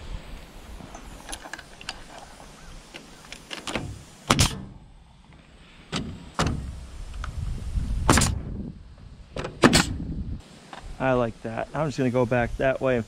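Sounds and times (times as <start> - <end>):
nail gun firing: 3.7 - 4.8, 8.1 - 8.5, 9.4 - 10.0.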